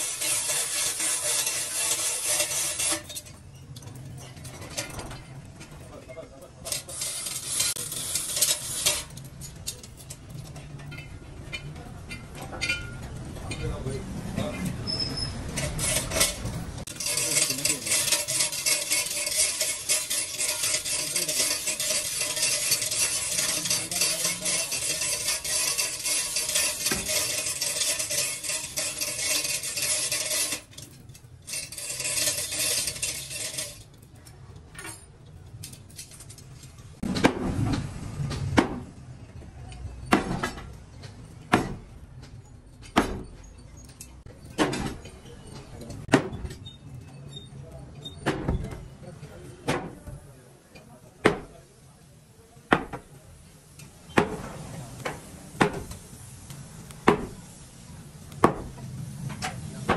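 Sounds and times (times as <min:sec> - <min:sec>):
harsh metal grinding: 0:00.0 - 0:37.6
sharp metallic knocks: 0:41.5 - 0:41.9.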